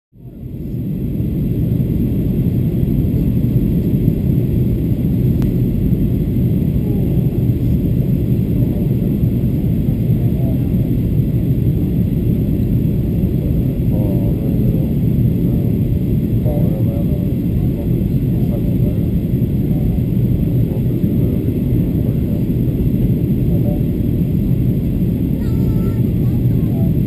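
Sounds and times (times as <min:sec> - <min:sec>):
airplane cabin rumble: 0:00.2 - 0:27.0.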